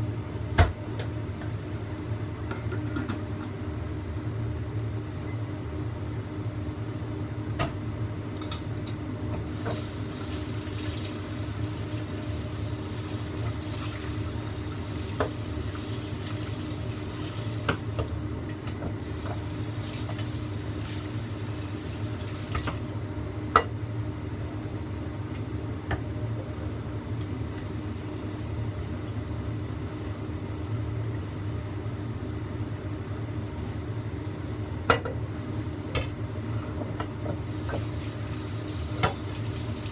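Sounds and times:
water boiling under a lid: 9.4 - 17.9, 18.9 - 23.2, 37.4 - 39.9
gas burner rumble: 9.4 - 25.9, 26.5 - 39.9.

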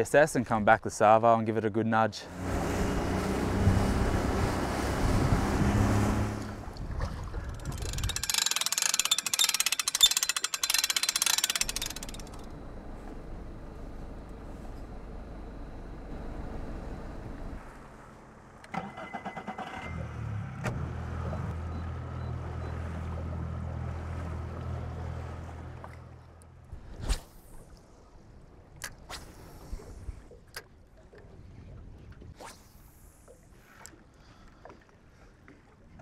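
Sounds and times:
loud engine rumble: 2.3 - 6.8, 11.6 - 18.8, 19.5 - 26.2
clicks: 7.5 - 13.2
steady hum: 7.6 - 18.7
engine idling: 7.6 - 19.7.

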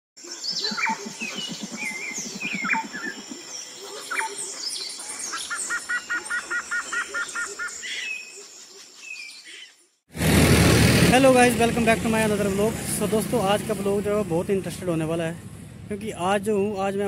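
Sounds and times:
birds chirping and whistling: 0.2 - 9.8, 16.2 - 17.0.

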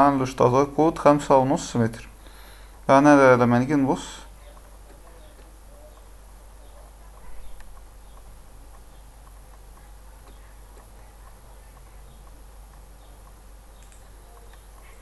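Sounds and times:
faint ticks: 7.2 - 15.0.

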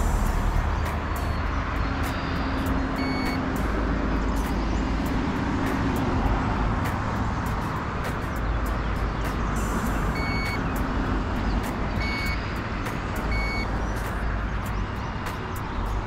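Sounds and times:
rumbling noise: 0.0 - 3.0
high electronic beeps: 0.0 - 3.5, 10.1 - 10.7, 12.0 - 12.4, 13.3 - 13.7.

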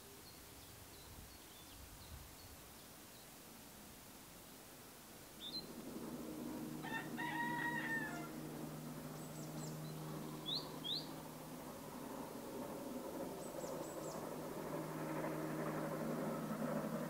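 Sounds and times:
low steady hum: 2.1 - 17.0
rising bird chirps: 5.4 - 5.8, 9.0 - 11.3, 13.3 - 14.4
rooster crowing: 6.7 - 8.6.

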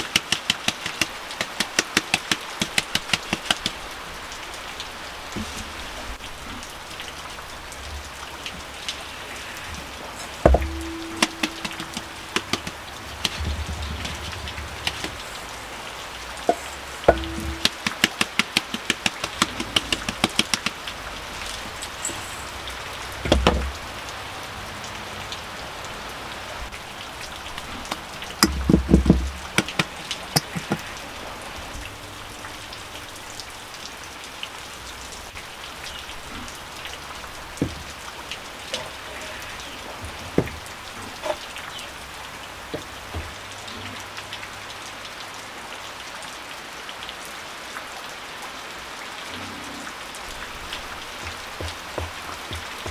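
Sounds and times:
water drips: 0.0 - 47.8, 49.2 - 52.9
rain on a corrugated roof: 0.0 - 52.9
wooden sieve knocking: 10.2 - 15.2, 16.5 - 20.7, 51.2 - 52.9
loud knocks: 10.2 - 15.8, 16.4 - 20.7, 23.2 - 23.8, 51.2 - 52.9.

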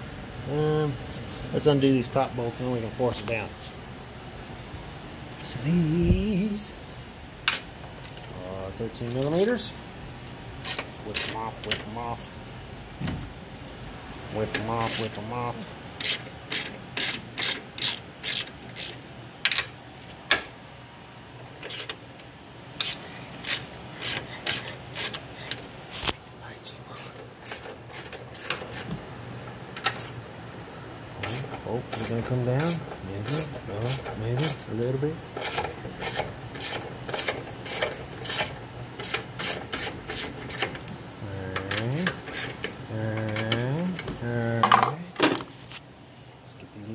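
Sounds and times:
socket ratchet clicking: 16.0 - 19.7.

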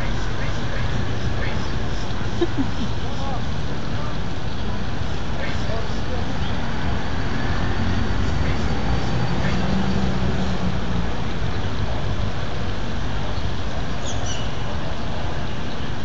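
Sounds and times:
street traffic noise: 0.0 - 16.0
vehicle engine hum: 0.0 - 16.0.

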